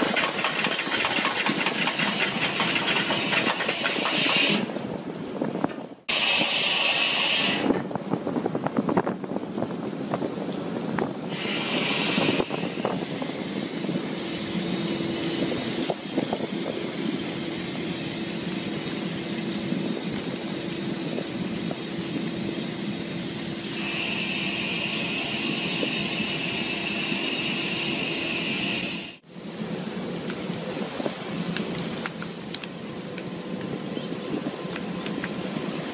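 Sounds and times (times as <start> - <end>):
boat engine humming: 0.0 - 35.9
high whine: 11.2 - 31.0.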